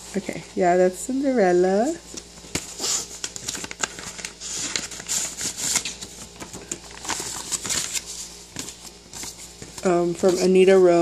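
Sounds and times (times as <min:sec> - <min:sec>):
paper rustling and crinkling: 0:02.1 - 0:11.0.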